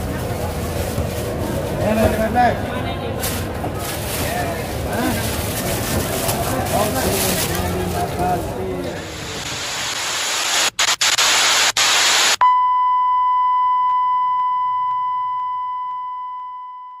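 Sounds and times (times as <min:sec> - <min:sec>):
static hiss: 0:08.9 - 0:12.4
high beep tone: 0:12.4 - 0:17.0.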